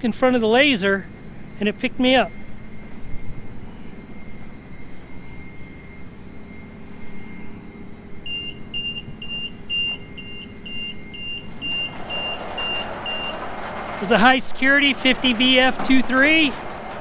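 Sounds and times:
high-pitched warning beeper: 0.0s - 17.0s
gate motor humming: 6.0s - 17.0s.

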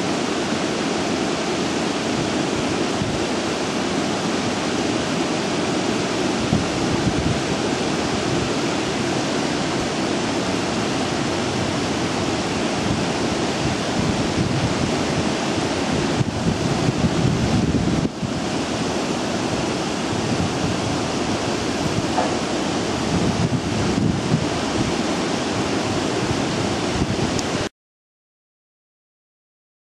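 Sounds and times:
water rushing: 0.0s - 27.7s
wind buffeting microphone: 2.1s - 3.6s, 6.2s - 27.7s.

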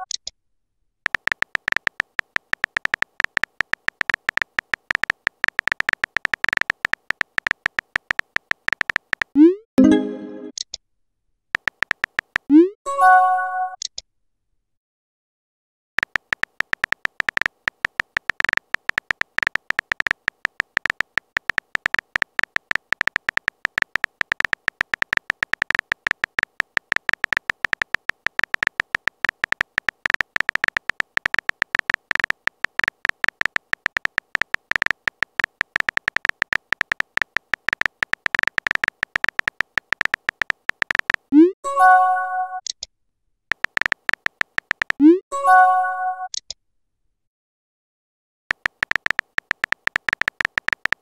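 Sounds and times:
phone keyboard typing taps: 1.0s - 9.4s, 11.6s - 12.5s, 16.0s - 41.4s, 43.5s - 45.2s, 48.5s - 51.0s.

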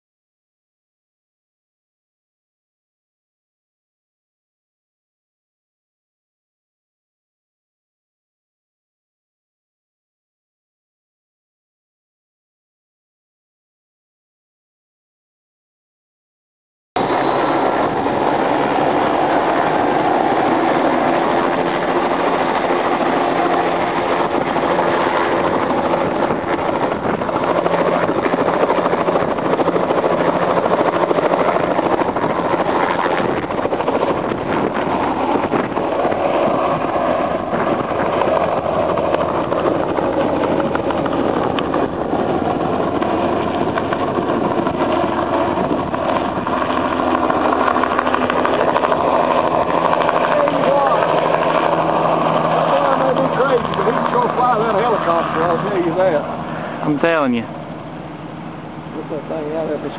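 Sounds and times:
helicopter engine and rotor: 17.0s - 59.9s.

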